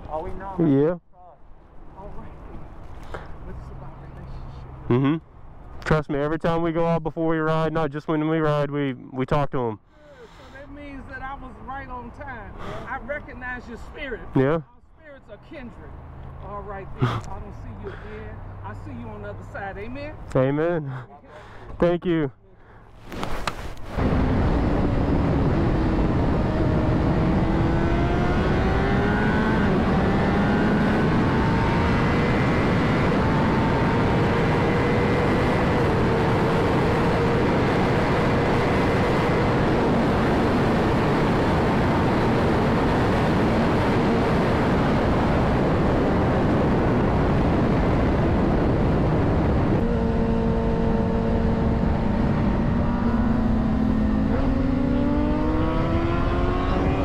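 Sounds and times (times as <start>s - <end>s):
wind rush on microphone: 23.0s - 53.1s
motorcycle engine revving: 23.9s - 47.0s, 48.0s - 57.0s.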